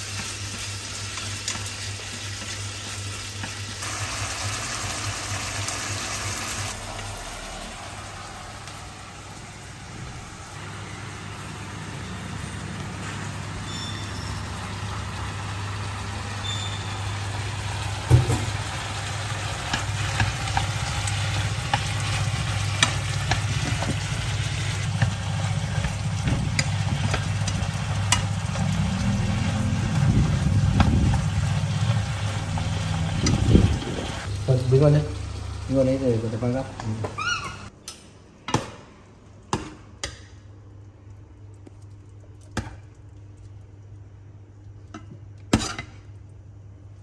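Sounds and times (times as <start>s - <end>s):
food sizzling in a frying pan: 0.0s - 37.3s.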